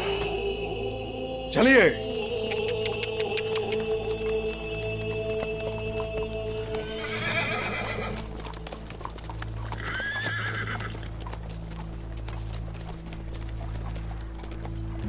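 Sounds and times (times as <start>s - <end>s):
low background music: 0.0s - 15.0s
horse hooves clip-clopping: 2.2s - 15.0s
horse whinnying: 6.6s - 8.4s, 9.7s - 11.2s.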